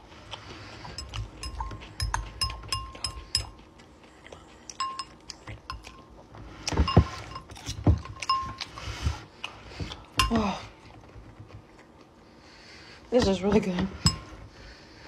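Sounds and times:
fork clinking against glass bowl: 0:01.0 - 0:03.6, 0:04.7 - 0:06.1, 0:08.2 - 0:08.7, 0:14.0 - 0:14.3.

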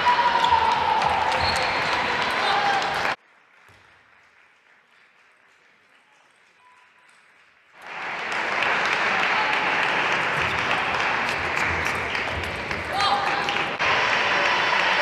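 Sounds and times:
crowd applause: 0:00.0 - 0:06.1, 0:07.7 - 0:15.0
faint hall ambience: 0:00.0 - 0:15.0.

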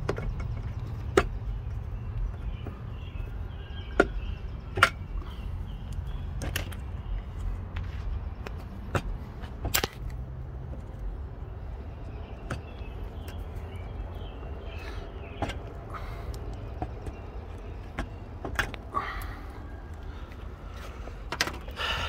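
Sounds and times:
steady low rumble: 0:00.0 - 0:22.0
plastic clips snapping: 0:09.0 - 0:10.2.

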